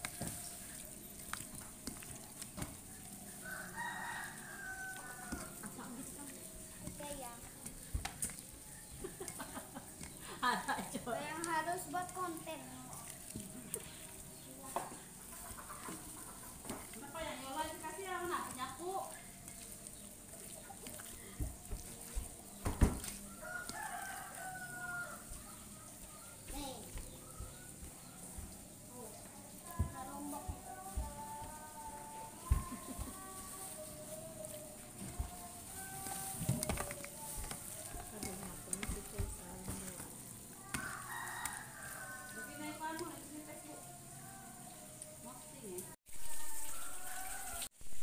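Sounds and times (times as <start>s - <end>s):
hand squelching paste into meat: 0.0s - 5.6s, 12.3s - 14.4s, 18.1s - 25.7s
rooster crowing: 3.3s - 6.0s, 23.0s - 26.2s, 31.6s - 34.6s, 40.5s - 45.2s, 46.1s - 48.0s.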